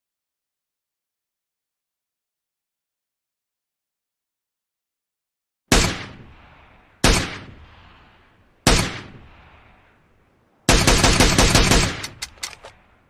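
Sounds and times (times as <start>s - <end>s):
single gunshots with echo: 5.7s - 9.8s
automatic gunfire burst: 10.7s - 12.6s.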